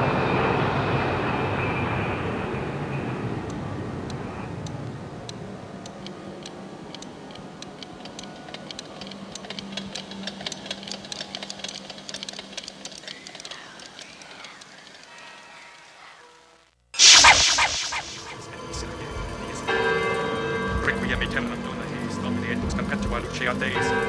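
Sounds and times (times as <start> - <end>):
noisy wash: 17.0 - 18.6.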